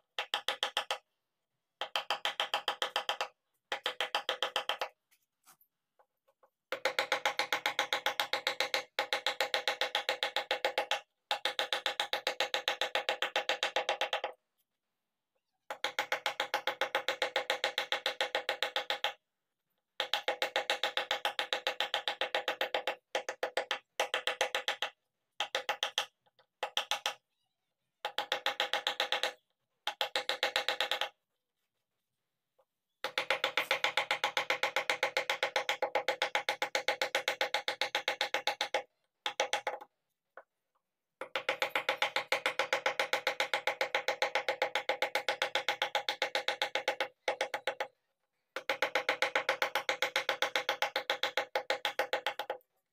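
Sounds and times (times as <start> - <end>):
mallet tapping chisel into wood: 0.2 - 1.0, 1.8 - 4.9, 6.7 - 14.4, 20.0 - 27.2, 28.0 - 31.2, 33.0 - 40.5, 41.2 - 48.0, 48.6 - 52.6.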